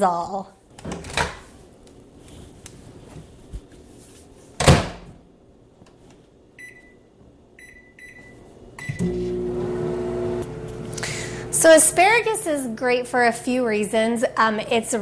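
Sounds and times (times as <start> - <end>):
keypad beeps: 6.6 - 7.0, 7.6 - 9.1.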